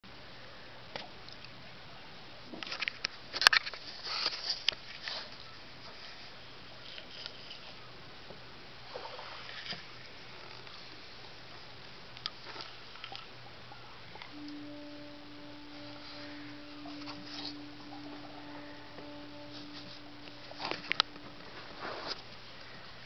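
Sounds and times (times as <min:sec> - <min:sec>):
faint steady hiss: 0:00.1 - 0:23.0.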